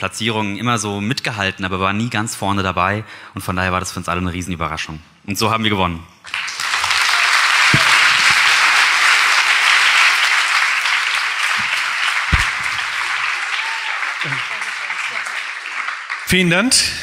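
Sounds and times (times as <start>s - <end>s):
audience applauding: 6.3s - 17.0s
dull low thumps: 12.3s - 13.2s.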